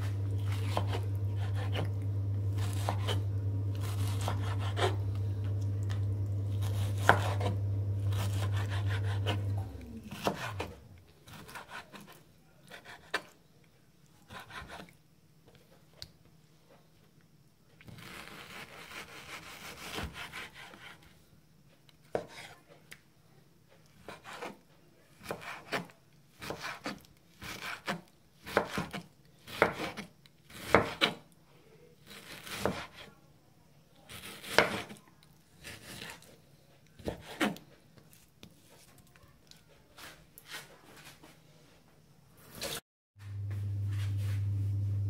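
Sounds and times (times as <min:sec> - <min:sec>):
knife sawing through meat: 0:00.0 - 0:05.1, 0:06.5 - 0:13.3, 0:18.0 - 0:21.0.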